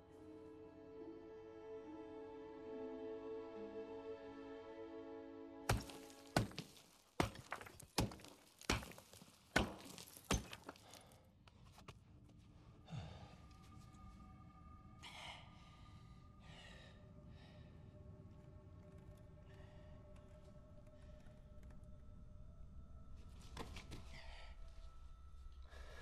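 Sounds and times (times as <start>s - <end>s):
heavy blows against rock: 5.7s - 10.9s.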